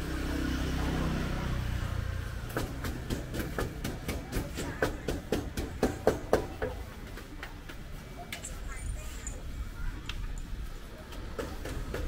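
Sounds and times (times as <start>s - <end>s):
pestle pounding in a mortar: 2.5s - 7.3s, 11.3s - 12.0s.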